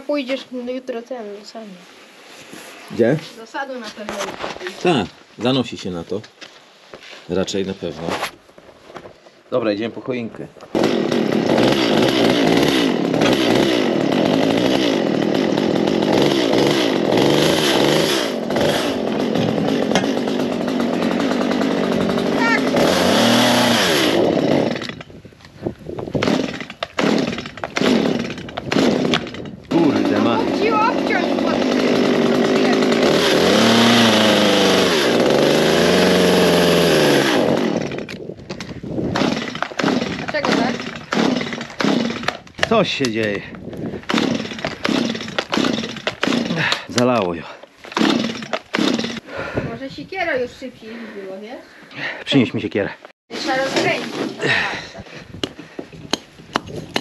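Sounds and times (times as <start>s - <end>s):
chainsaw idling unevenly: 10.7s - 49.8s, 53.3s - 57.0s.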